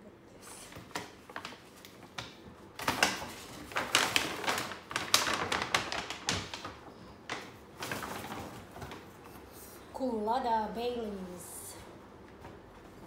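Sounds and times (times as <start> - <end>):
paper bag crinkling: 0.8 - 9.4.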